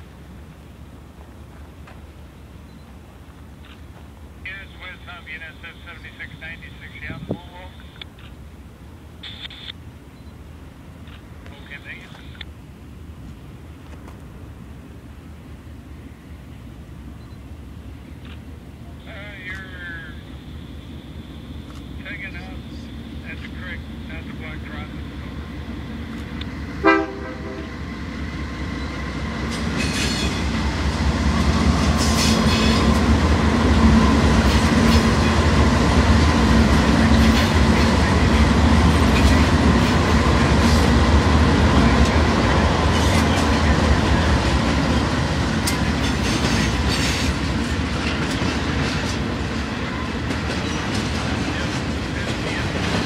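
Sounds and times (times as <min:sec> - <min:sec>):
diesel locomotives passing: 0:00.0 - 0:09.2, 0:09.8 - 0:53.0
train wheels clattering over rail joints: 0:45.6 - 0:53.0.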